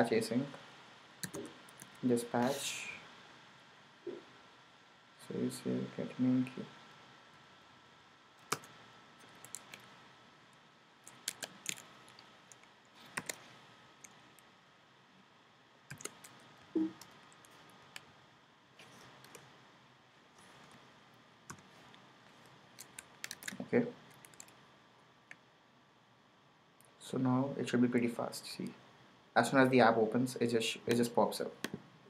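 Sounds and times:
computer keyboard keystrokes: 1.2 - 2.0, 8.5 - 9.9, 11.1 - 13.4, 15.9 - 16.4, 22.8 - 24.5.

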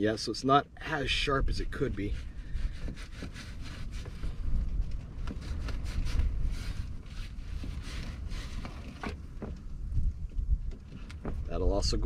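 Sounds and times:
wind buffeting microphone: 1.0 - 12.0.

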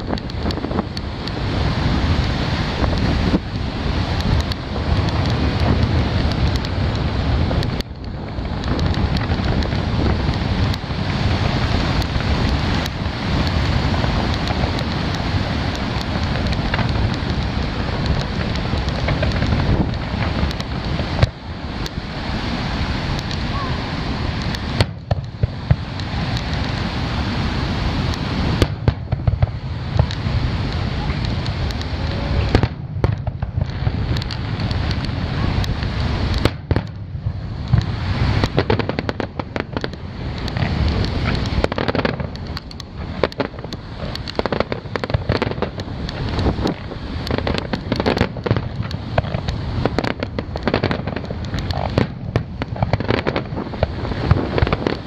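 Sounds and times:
fireworks bangs and crackle: 0.0 - 55.0.

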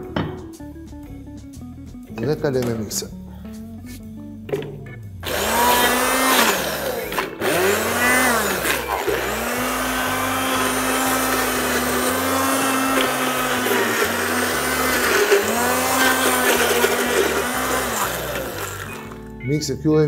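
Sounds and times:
immersion blender motor hum: 5.2 - 19.4.

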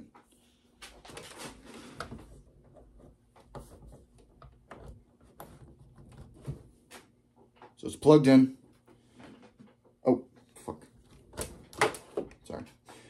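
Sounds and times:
cable plugging clicks and rustles: 0.1 - 7.8, 10.9 - 12.9.

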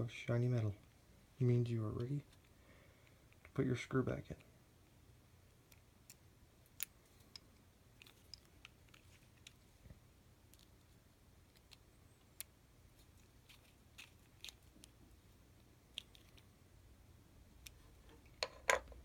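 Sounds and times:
metal parts tapping: 18.2 - 19.0.

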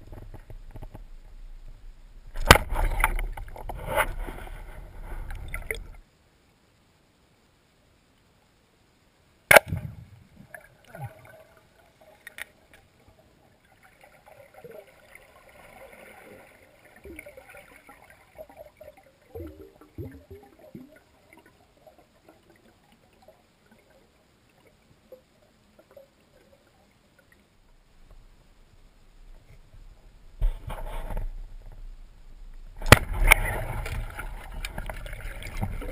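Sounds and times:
underwater gurgling and bubbling: 14.2 - 22.9, 32.7 - 35.9.

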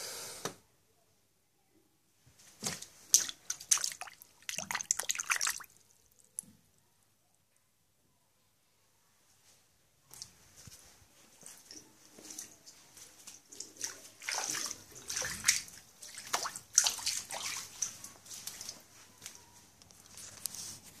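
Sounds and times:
floodwater splashing on tiled floor: 2.6 - 6.5, 11.4 - 18.9.

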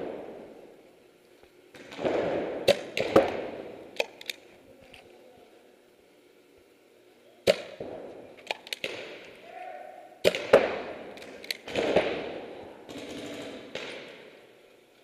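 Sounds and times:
paintball markers firing: 1.7 - 4.5, 7.4 - 9.4, 10.2 - 14.3.

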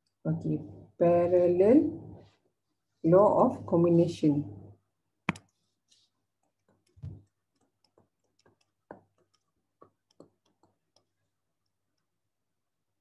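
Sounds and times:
stylus tapping on tablet screen: 5.2 - 5.6, 6.3 - 12.2.

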